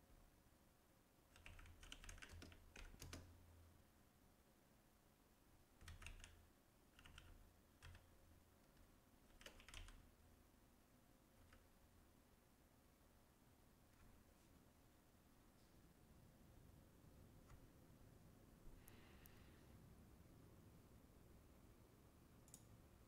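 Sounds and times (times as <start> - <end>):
faint keyboard typing: 1.2 - 3.6, 5.8 - 10.2, 11.3 - 11.9, 13.8 - 14.4, 17.3 - 17.9, 22.4 - 22.9.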